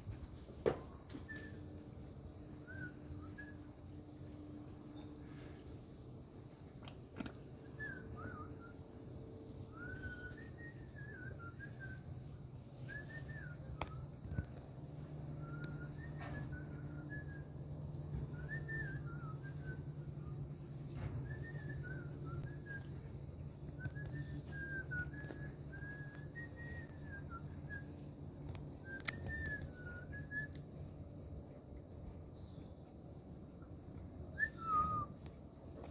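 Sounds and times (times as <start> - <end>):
steady low hum: 0.0 - 35.9
person whistling a tune: 9.8 - 12.0, 18.2 - 19.8, 23.8 - 27.9, 34.3 - 35.2.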